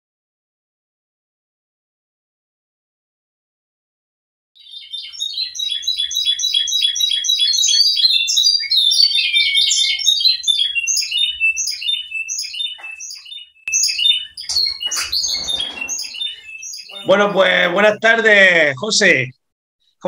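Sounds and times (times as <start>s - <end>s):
canary singing trills and chirps: 4.6s - 18.2s.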